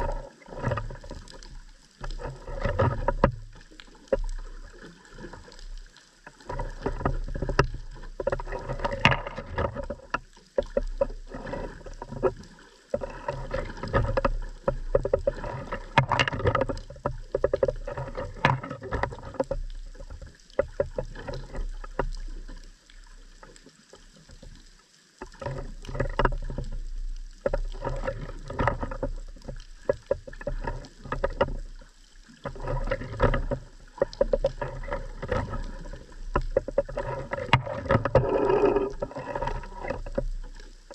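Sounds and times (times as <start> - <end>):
rapid underwater crackling clicks: 0.0 - 40.9
muffled underwater noise: 32.4 - 40.9.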